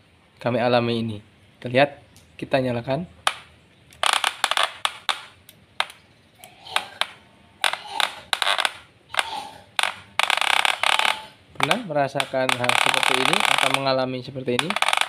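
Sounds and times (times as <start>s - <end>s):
hair clipper clattering: 4.0s - 6.0s, 6.8s - 14.0s, 14.6s - 15.0s.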